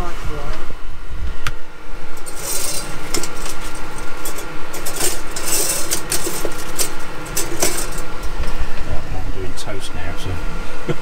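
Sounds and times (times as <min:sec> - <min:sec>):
machine hum: 0:00.0 - 0:11.0
toast scraping and rustling: 0:02.1 - 0:08.8.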